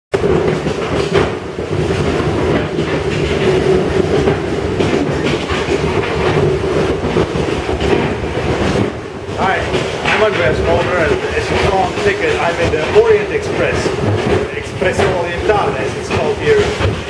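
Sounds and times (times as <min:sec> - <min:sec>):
train carriage rumble: 0:00.1 - 0:17.0
carriage knocking and rattling: 0:00.2 - 0:17.0.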